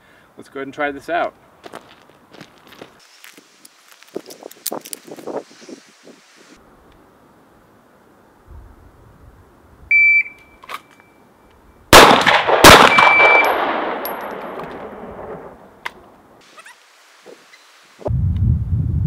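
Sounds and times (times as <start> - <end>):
electronic start beep: 9.9 - 10.4, 13.0 - 13.5
handgun shots: 11.9 - 14.8.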